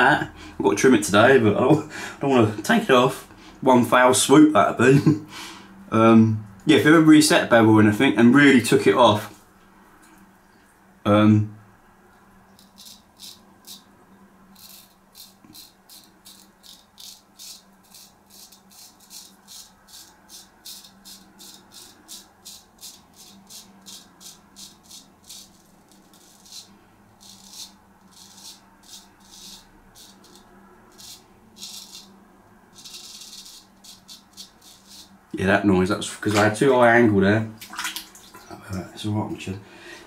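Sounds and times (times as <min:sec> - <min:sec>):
razor scraping stubble: 0:12.6 - 0:13.9, 0:14.5 - 0:35.3.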